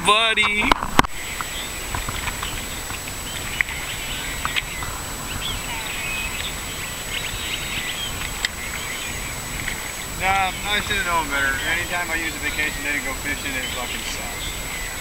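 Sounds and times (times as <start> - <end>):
low background noise: 0.0 - 15.0
small birds chirping: 0.3 - 15.0
faint clicks: 4.4 - 5.6.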